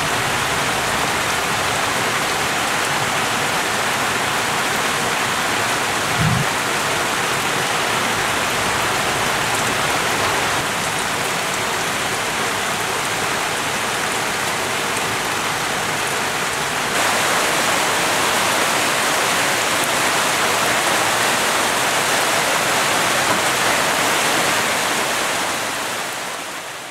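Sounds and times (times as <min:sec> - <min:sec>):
rain falling on leaves: 0:00.0 - 0:26.9
low thump: 0:06.1 - 0:06.5.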